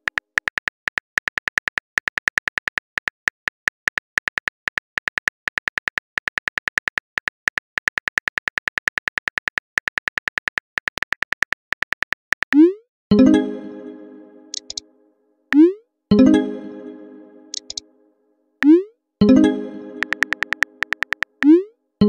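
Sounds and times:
phone keyboard typing clicks: 0.0s - 12.6s, 14.5s - 14.8s, 17.5s - 17.8s, 20.0s - 21.6s.

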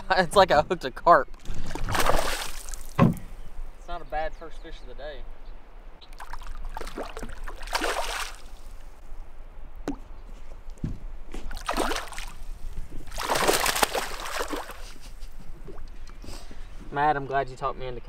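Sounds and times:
fish thrashing and splashing: 1.4s - 3.0s, 6.1s - 8.8s, 11.4s - 15.0s.

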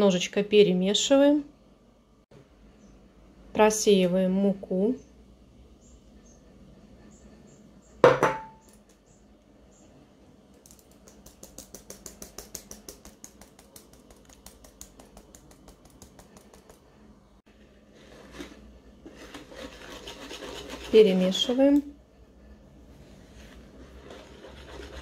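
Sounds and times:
wire whisk scraping: 18.0s - 21.6s, 23.8s - 25.0s.

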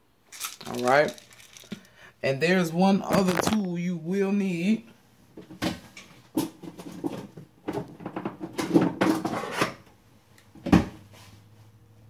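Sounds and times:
utensils rattling in drawer: 0.3s - 1.8s.

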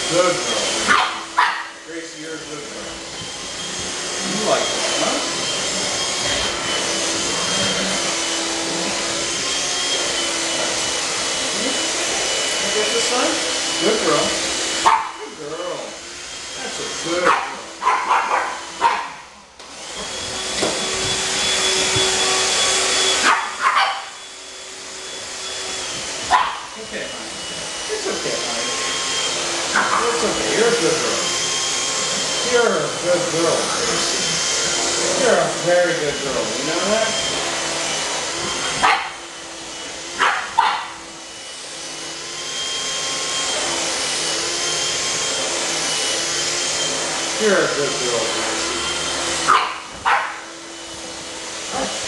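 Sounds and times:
handheld vacuum cleaner whine: 0.0s - 52.0s
puppy barking: 0.9s - 1.8s, 14.8s - 15.2s, 17.2s - 19.2s, 23.2s - 24.1s, 26.3s - 26.7s, 29.7s - 30.2s, 38.8s - 39.2s, 40.2s - 41.0s, 49.5s - 50.4s.

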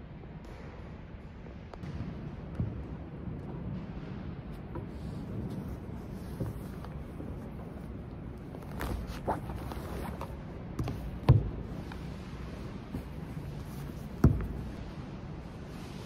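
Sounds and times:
canvas bag rustling: 5.6s - 10.4s
books knocking on wooden table: 13.8s - 14.7s.

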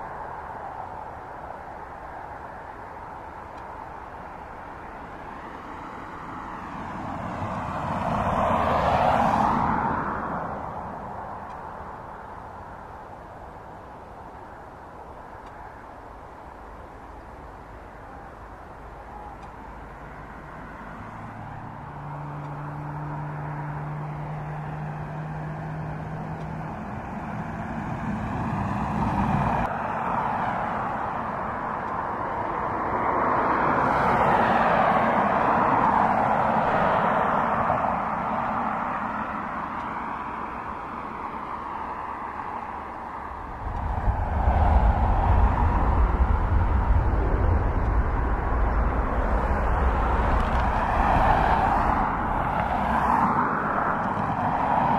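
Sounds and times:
jet engine roar and whine: 26.4s - 54.9s
deep rumble: 43.2s - 53.1s.

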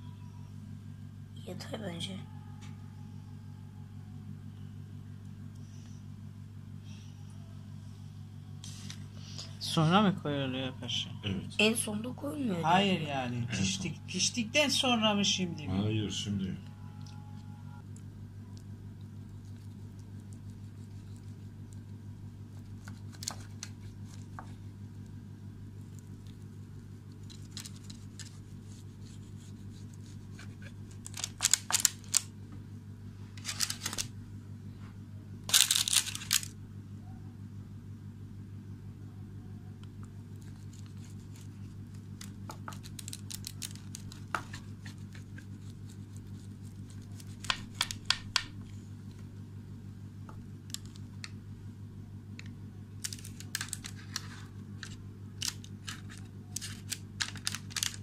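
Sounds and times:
steady low hum: 0.0s - 58.0s
pizza cutter crackling through crust: 18.6s - 32.3s, 40.3s - 48.5s.

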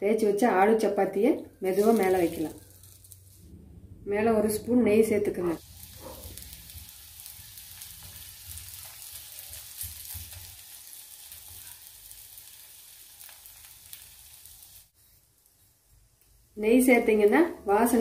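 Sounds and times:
oil sizzling on a hot griddle: 1.6s - 3.5s, 5.6s - 18.0s.

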